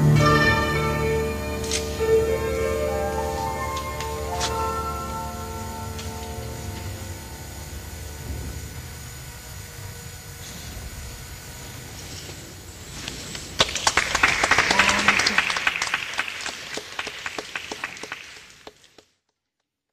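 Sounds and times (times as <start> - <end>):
low background hum: 0.0 - 19.0
audience applause: 13.6 - 19.2.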